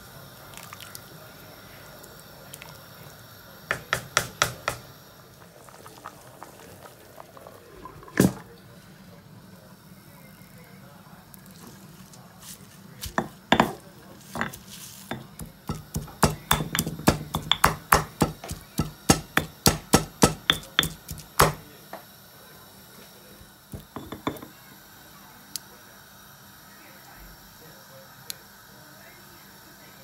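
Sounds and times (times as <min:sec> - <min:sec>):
stone pestle pounding in mortar: 0:03.7 - 0:04.8, 0:13.0 - 0:21.6.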